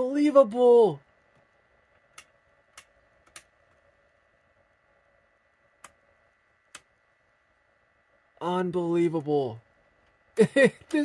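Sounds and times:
faint steady whine: 0:00.0 - 0:11.0
rotary switch detent clicks: 0:02.1 - 0:03.6, 0:05.8 - 0:06.0.

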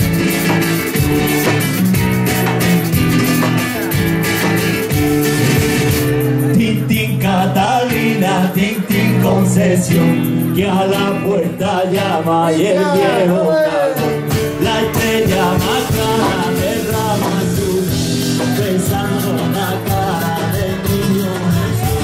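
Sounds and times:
drum kit: 0:00.0 - 0:12.4, 0:14.0 - 0:22.0
guitar strumming chords: 0:00.0 - 0:22.0
man singing: 0:06.3 - 0:22.0.

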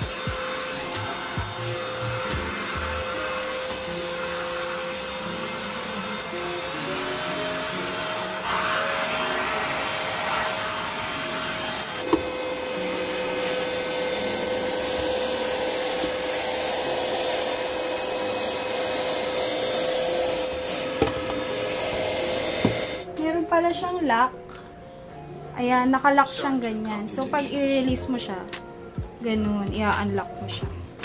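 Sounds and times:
stick vacuum motor whine: 0:00.0 - 0:23.1.

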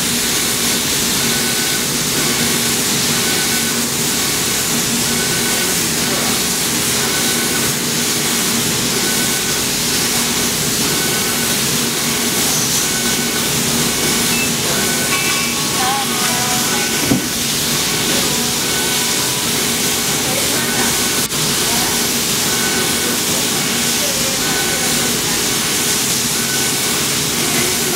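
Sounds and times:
hiss of blowing air and fans: 0:00.0 - 0:27.9
faint high tones: 0:14.3 - 0:21.2.

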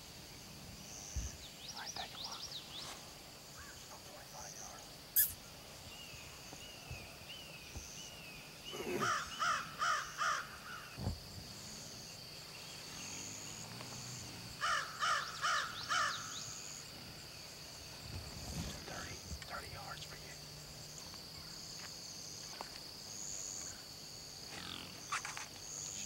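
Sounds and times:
high insect drone: 0:00.0 - 0:26.0
crow cawing: 0:09.0 - 0:11.0, 0:14.6 - 0:16.4.

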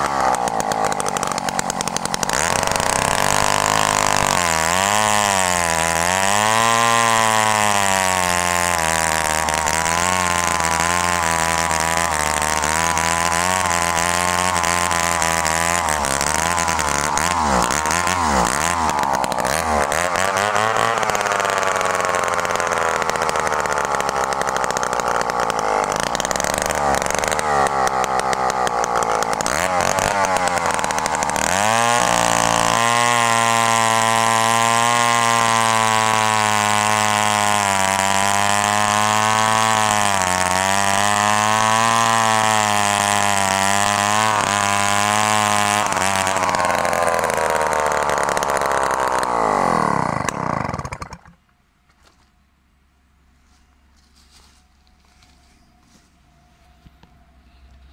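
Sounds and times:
chainsaw revving and cutting log: 0:00.0 - 0:51.4.

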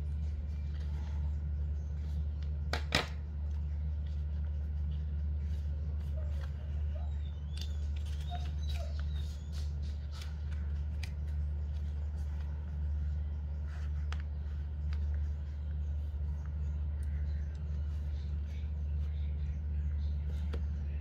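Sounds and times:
low hum: 0:00.0 - 0:21.0
paper and cardboard rustling: 0:07.6 - 0:21.0.

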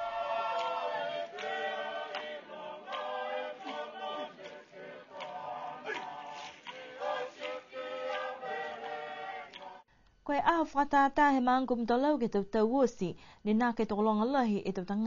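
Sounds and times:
choir singing in harmony: 0:00.0 - 0:09.9.

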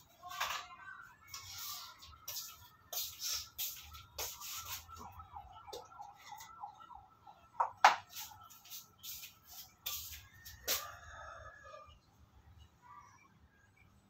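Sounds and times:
slipper footsteps and rustles: 0:01.3 - 0:06.5, 0:07.8 - 0:11.0.

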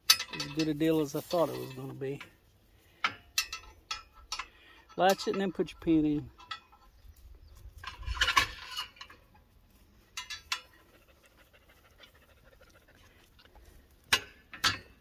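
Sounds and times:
sharp metal clanks: 0:00.0 - 0:02.3, 0:03.0 - 0:07.0, 0:14.1 - 0:15.0.

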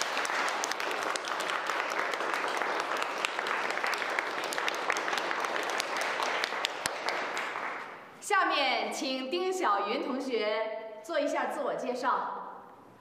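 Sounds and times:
students applauding: 0:00.0 - 0:08.0.

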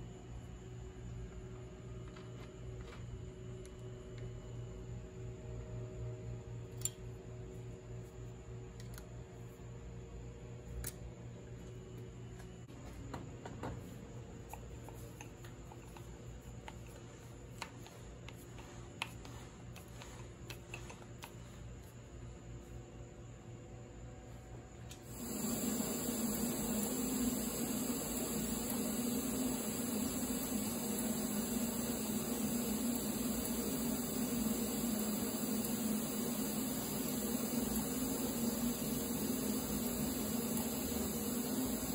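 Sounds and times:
welding arc hissing: 0:24.9 - 0:41.9.

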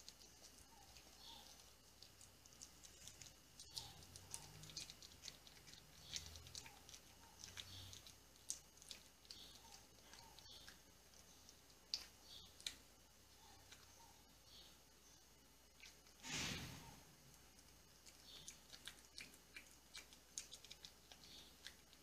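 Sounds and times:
puppy crunching dry kibble: 0:00.0 - 0:12.9, 0:17.2 - 0:22.0.

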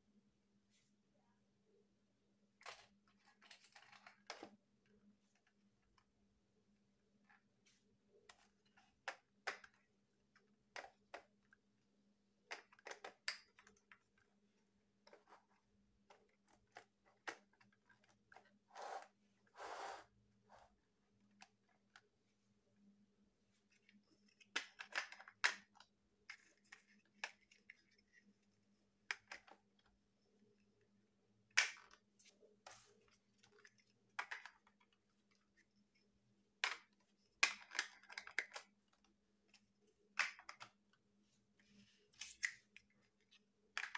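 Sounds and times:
plastic blocks clicking together: 0:08.7 - 0:11.5, 0:12.4 - 0:14.3, 0:24.3 - 0:28.0, 0:31.5 - 0:32.1, 0:33.4 - 0:35.6, 0:36.6 - 0:39.1, 0:40.1 - 0:40.8.

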